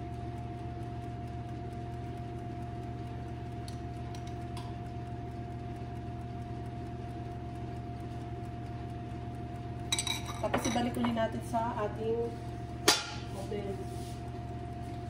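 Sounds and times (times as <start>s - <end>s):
electrical appliance hum: 0.0s - 15.0s
constant thin tone: 0.1s - 15.0s.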